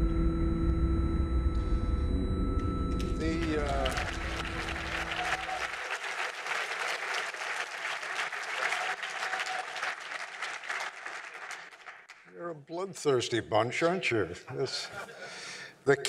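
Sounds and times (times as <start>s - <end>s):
low sustained tone: 0.0s - 5.0s
audience applause: 3.2s - 12.3s.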